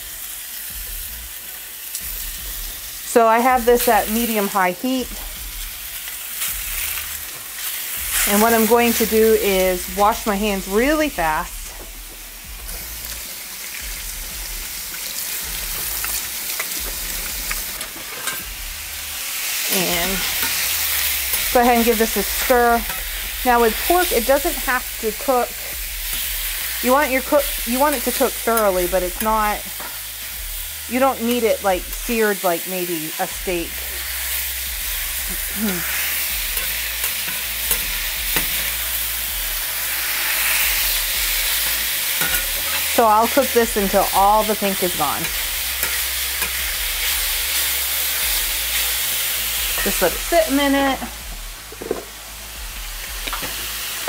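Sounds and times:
pork sizzling in a pan: 0.0 - 54.0
spatula tapping and scraping pan: 42.2 - 42.9.

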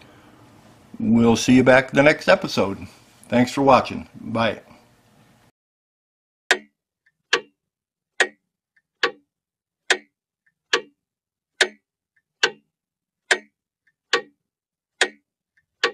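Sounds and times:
clock ticking: 6.5 - 15.9.

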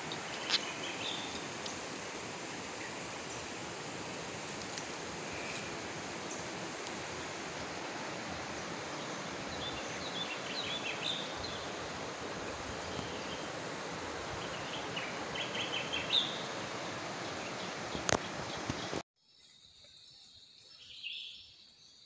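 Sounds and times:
small birds chirping: 0.0 - 1.8, 8.6 - 11.8
steady outdoor hiss: 0.0 - 22.0.

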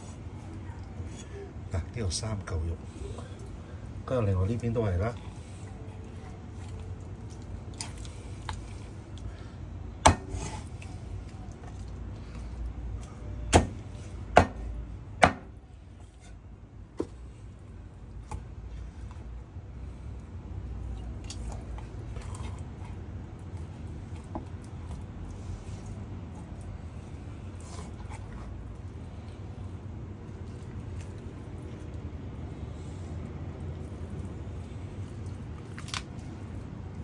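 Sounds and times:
cutting and handling chicken: 0.0 - 37.0
cleaver chopping on wooden board: 10.0 - 10.4, 15.2 - 15.5.

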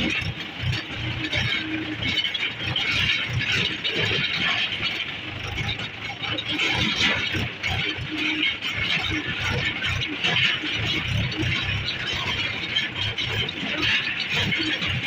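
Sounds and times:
tractor diesel engine chugging: 0.0 - 15.0.

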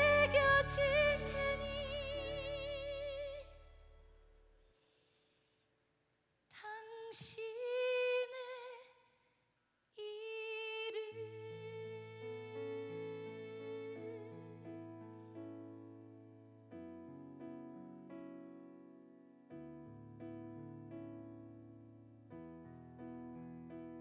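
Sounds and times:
woman singing with vibrato: 0.0 - 3.6, 6.6 - 8.9, 10.0 - 14.5.

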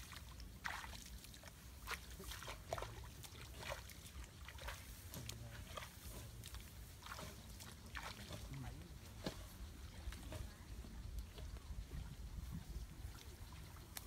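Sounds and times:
feet wading through shallow water: 0.0 - 14.0
wind rumble on microphone: 9.6 - 14.0.

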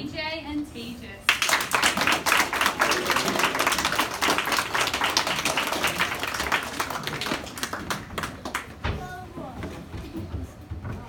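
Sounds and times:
audience clapping: 1.3 - 8.8.

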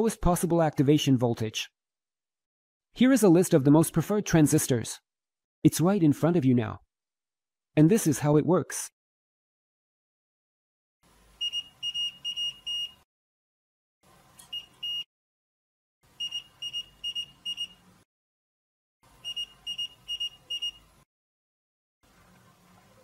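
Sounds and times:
multimeter continuity beeps: 11.4 - 13.0, 14.4 - 15.1, 16.2 - 17.8, 19.2 - 20.8.

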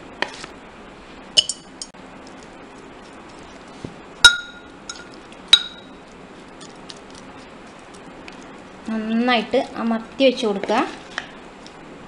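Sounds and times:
metal spoon clinking on ceramic jar: 1.4 - 1.9, 4.3 - 5.9.

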